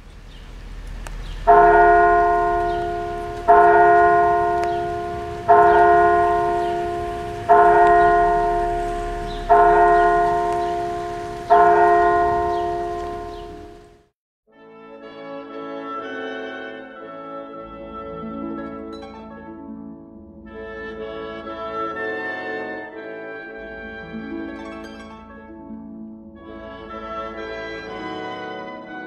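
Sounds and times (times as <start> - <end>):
tower bell striking: 1.5 - 14.0.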